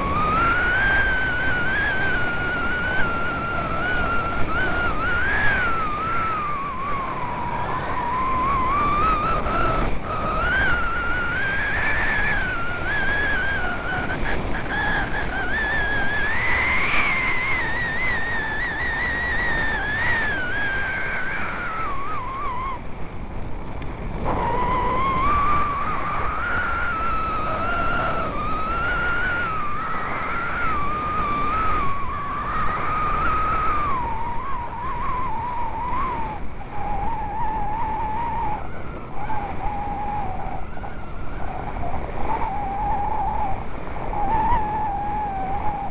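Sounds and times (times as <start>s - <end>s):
high wavering whistle: 0.0s - 45.9s
wind on microphone: 0.0s - 45.9s.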